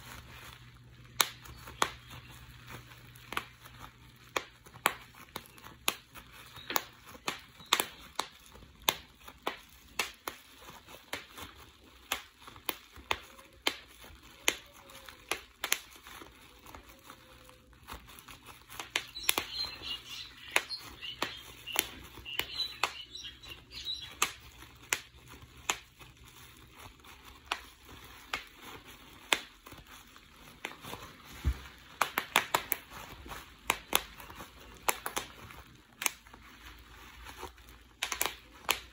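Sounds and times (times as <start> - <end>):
bubble wrap popping: 0.0 - 38.9
plastic sheet crinkling: 0.0 - 38.9.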